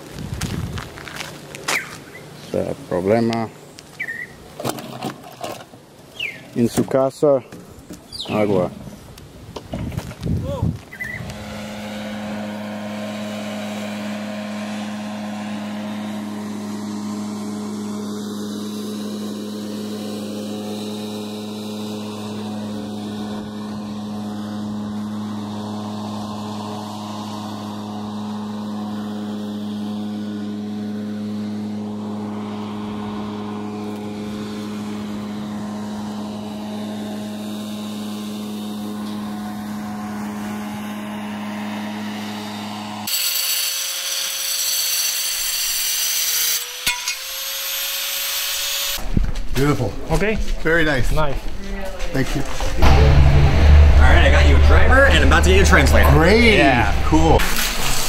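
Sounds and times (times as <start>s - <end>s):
small motor humming steadily: 10.9s - 49.1s.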